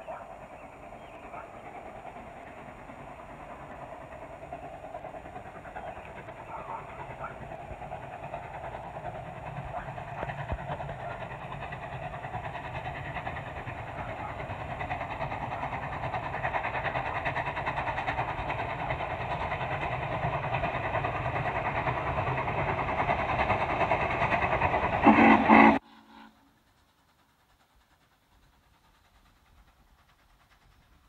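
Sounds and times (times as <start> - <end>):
steam locomotive exhaust beat: 0.0 - 31.0.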